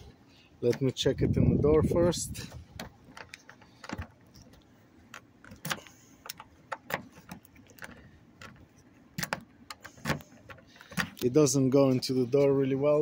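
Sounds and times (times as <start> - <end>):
key clicking and scraping in lock: 2.5 - 11.3.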